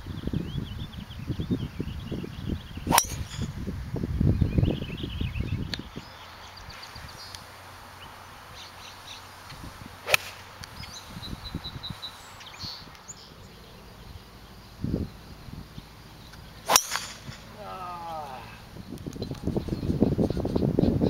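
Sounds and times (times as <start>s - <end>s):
golf club striking ball: 2.9s - 3.7s, 10.0s - 10.7s, 16.6s - 17.7s
faint bird chirps: 10.7s - 21.0s.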